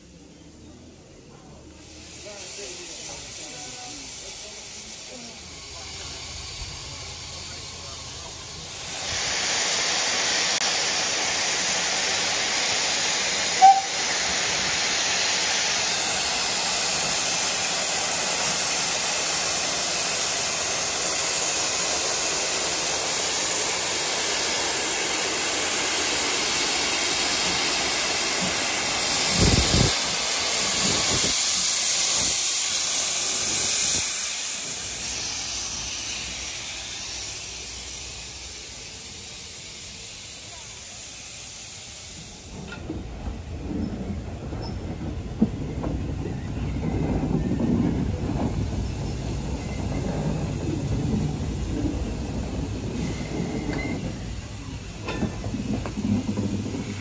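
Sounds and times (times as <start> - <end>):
steam locomotive hissing: 0.0 - 57.0
low bumps: 42.6 - 57.0.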